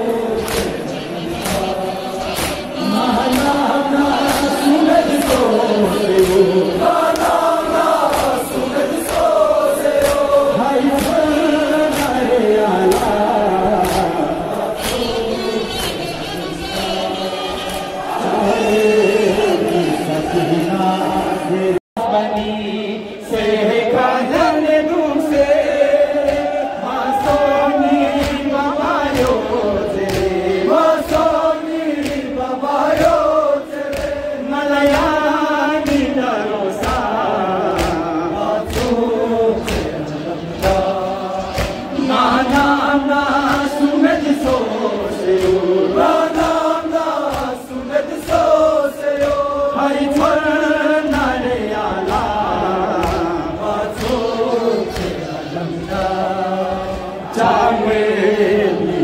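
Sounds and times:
men chanting a lament: 0.0s - 59.0s
chest-beating slaps: 25.6s - 27.5s, 28.1s - 35.2s, 37.7s - 42.8s, 51.0s - 55.2s.

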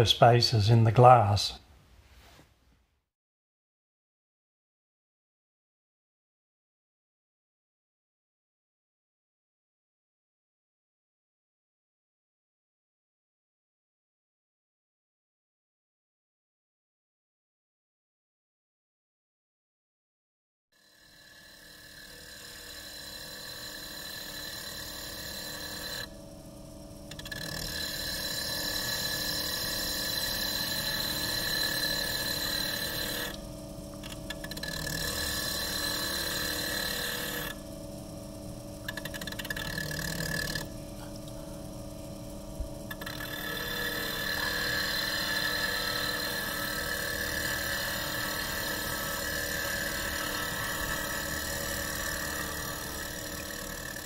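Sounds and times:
lathe whining: 20.8s - 54.0s.

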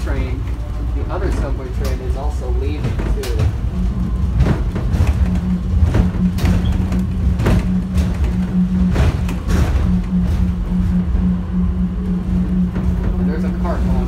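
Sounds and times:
subway train low rumble: 0.0s - 14.0s
wavering hum: 0.0s - 14.0s.

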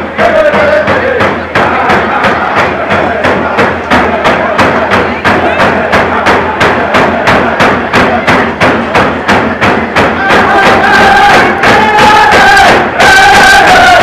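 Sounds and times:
hand drums beating: 0.0s - 14.0s
voices chanting: 0.0s - 14.0s.

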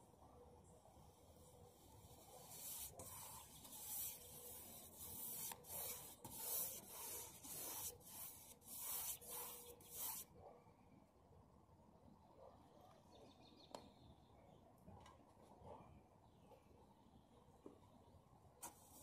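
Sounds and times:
paintbrush scratching on metal siding: 1.0s - 10.3s, 18.6s - 19.0s.

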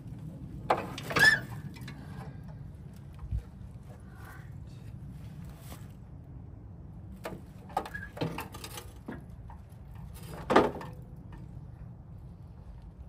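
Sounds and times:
steady low hum: 0.0s - 7.7s
metal parts knocking and clunking: 0.6s - 2.6s, 7.2s - 11.5s.

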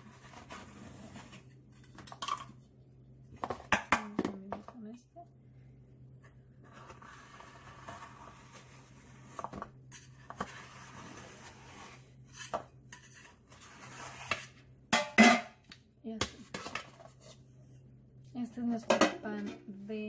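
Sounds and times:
metal spatula scraping cake pan: 0.0s - 2.0s, 6.6s - 14.6s.

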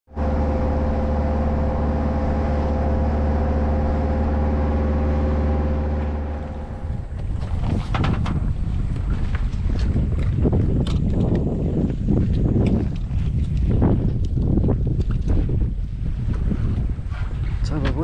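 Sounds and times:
water rushing: 0.1s - 10.3s
boat engine running: 0.1s - 18.0s
fishing gear clicks and knocks: 7.2s - 15.4s.

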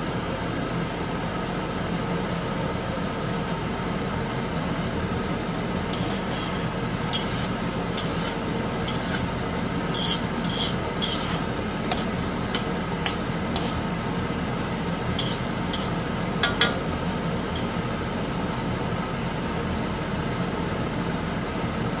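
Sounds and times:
steady background hum: 0.0s - 22.0s
fat sizzling in a wok: 4.4s - 18.4s
metal spatula scraping pan: 5.9s - 13.9s, 15.1s - 16.8s, 17.4s - 17.8s.

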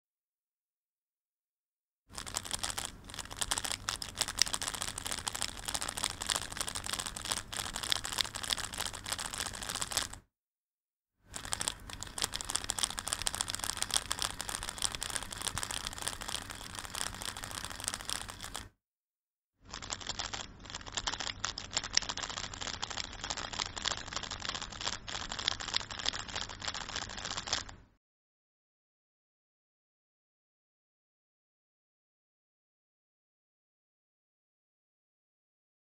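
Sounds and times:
speedcube layers clicking: 2.1s - 10.2s, 11.3s - 18.8s, 19.7s - 27.8s.

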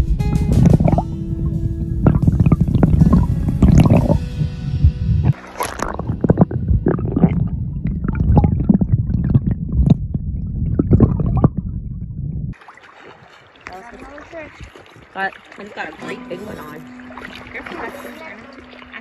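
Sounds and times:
muffled underwater river rumble: 0.0s - 12.6s.

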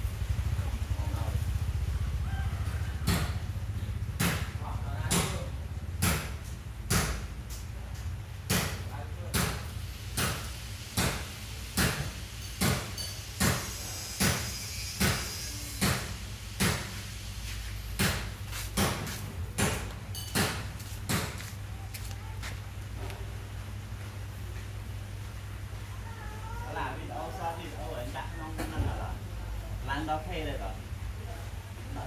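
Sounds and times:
sharp knocks: 4.2s - 7.3s, 8.5s - 9.6s, 10.2s - 16.9s, 18.0s - 21.5s.

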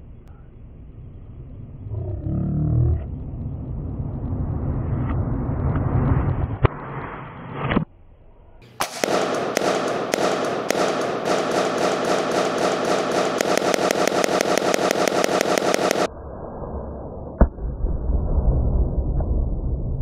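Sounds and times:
low rumble: 0.0s - 20.0s
pellet gun shot: 8.6s - 16.1s
sharp crackling pops: 8.6s - 16.1s.

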